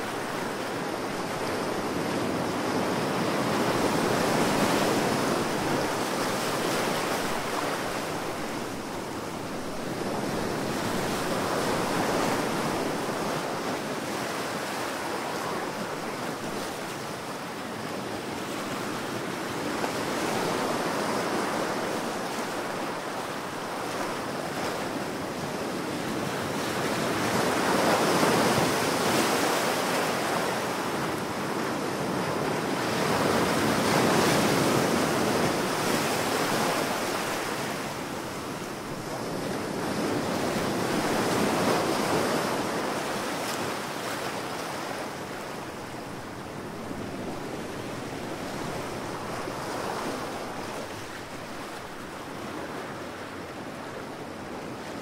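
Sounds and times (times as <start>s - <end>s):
ocean waves breaking: 18.2s - 55.0s.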